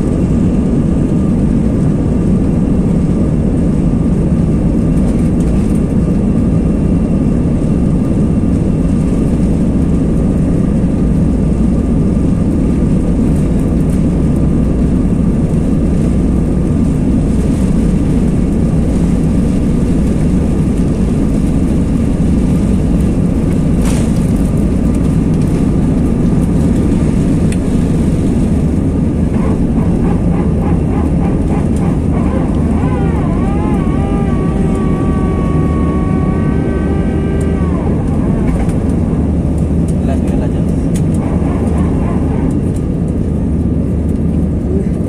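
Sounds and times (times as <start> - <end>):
jet engines at takeoff: 0.0 - 45.0
wavering pitched tone: 29.3 - 39.6.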